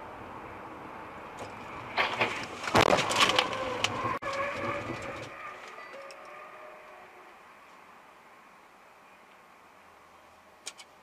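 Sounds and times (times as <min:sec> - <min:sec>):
road noise: 0:00.0 - 0:11.0
car crash bangs and crunching: 0:01.9 - 0:05.2.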